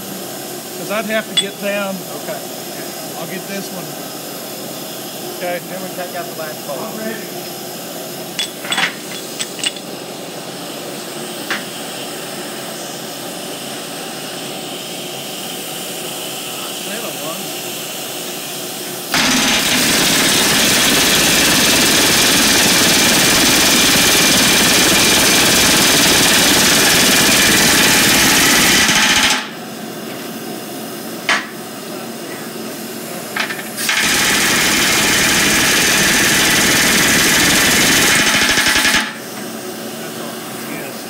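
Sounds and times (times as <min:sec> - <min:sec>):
pneumatic rivet gun hammering: 0:01.4 - 0:01.8, 0:08.3 - 0:09.9, 0:11.4 - 0:11.7, 0:19.1 - 0:30.3, 0:31.2 - 0:31.6, 0:33.3 - 0:39.5.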